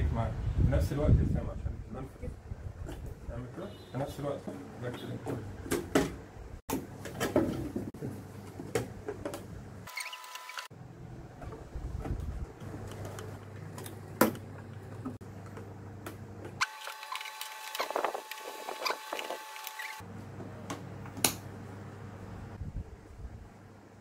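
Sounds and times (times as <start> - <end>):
wooden pieces clicking and scraping: 16.6 - 20.0.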